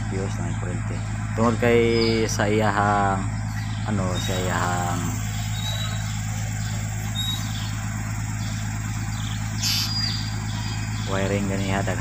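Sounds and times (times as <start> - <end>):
vehicle engine idling: 0.0 - 12.0
faint high chirps: 3.2 - 11.8.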